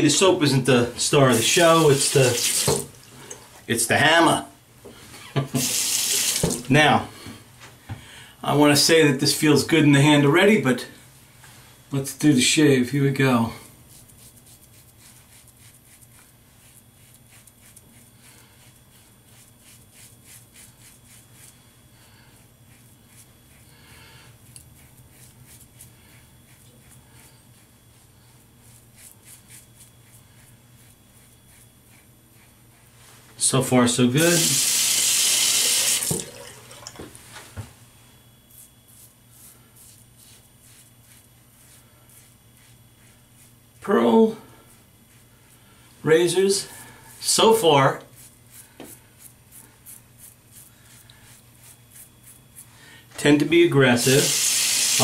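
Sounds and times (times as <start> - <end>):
razor scraping stubble: 13.9 - 21.8, 22.4 - 33.0, 38.4 - 44.3, 46.1 - 52.7.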